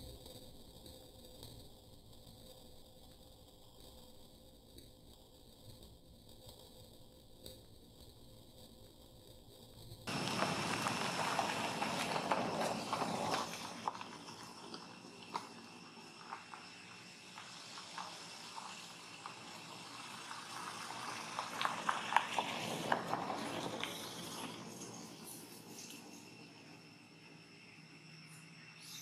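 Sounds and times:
faint steady high tone: 24.6s - 29.0s.

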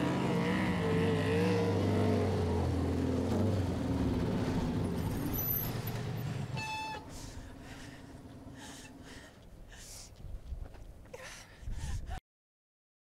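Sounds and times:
motorcycle engines: 0.0s - 9.1s.

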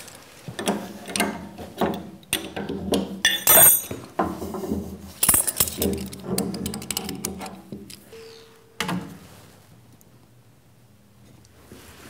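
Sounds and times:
ringing metal clank: 3.3s - 3.9s
metal tools clinking: 3.3s - 4.0s, 5.2s - 6.2s.

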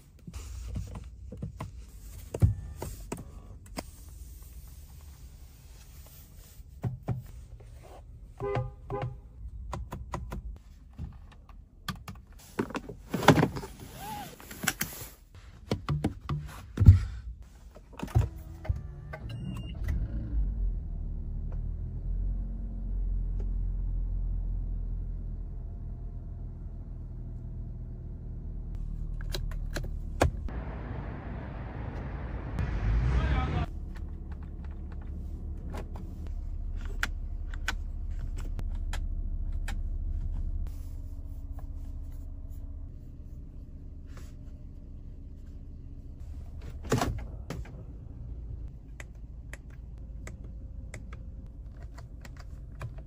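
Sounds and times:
clicks of cabin controls: 8.4s - 12.3s
car engine starting and idling: 16.9s - 53.0s.

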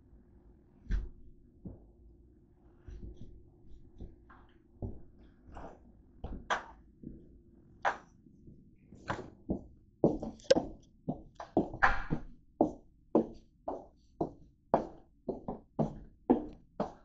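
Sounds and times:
footsteps on hard floor: 9.1s - 17.0s.

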